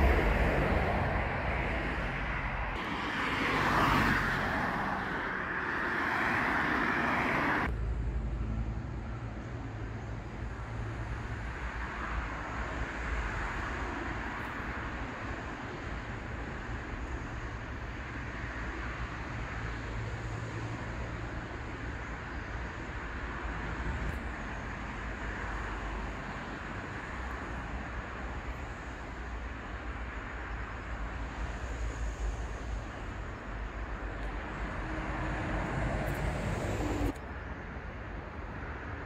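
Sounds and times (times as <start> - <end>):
road traffic rushing: 0.0 - 39.0.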